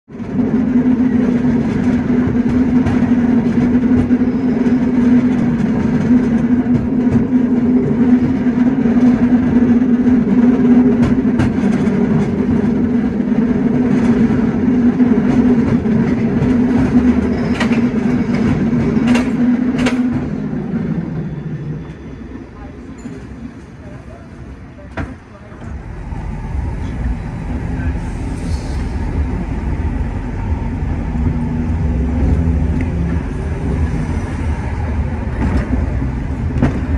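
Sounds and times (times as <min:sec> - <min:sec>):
cable car mechanical hum: 0:22.6 - 0:36.9.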